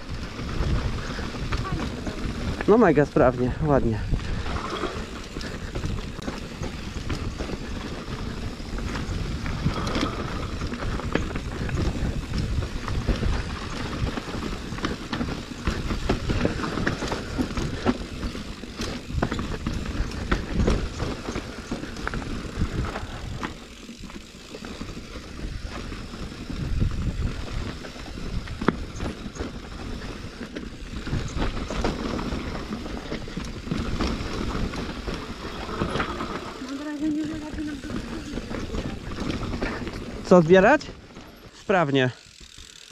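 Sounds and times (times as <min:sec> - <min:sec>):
bike chain and frame rattling: 0:00.0 - 0:42.9
bike tyres on dirt trail: 0:00.0 - 0:42.9.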